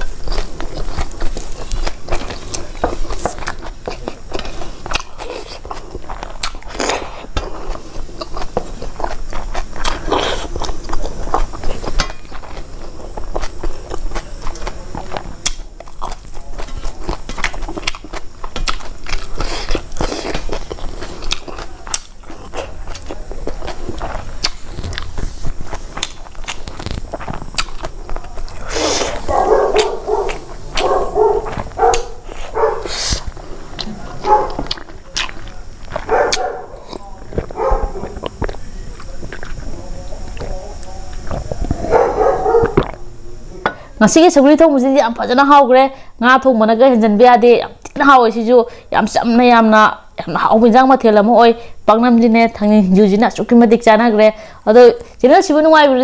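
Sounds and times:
wet chewing and mouth smacks: 0.0s - 43.0s.

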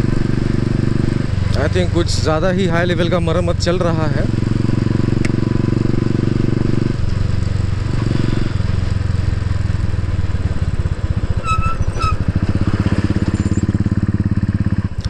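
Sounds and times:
motorcycle engine thumping: 6.5s - 15.0s.

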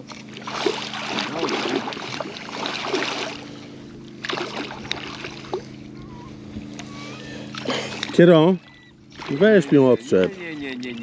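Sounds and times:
water splashing: 0.0s - 6.0s, 6.7s - 11.0s
boat motor humming: 0.0s - 11.0s.

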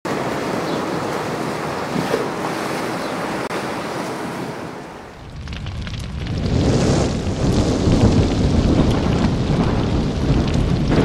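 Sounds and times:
choppy water rushing: 0.1s - 11.0s
wind on microphone: 5.2s - 11.0s.

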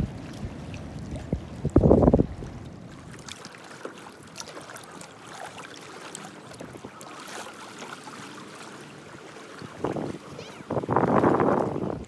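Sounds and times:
small water clicks: 0.0s - 8.4s
waves lapping against kayak hull: 0.0s - 12.0s.

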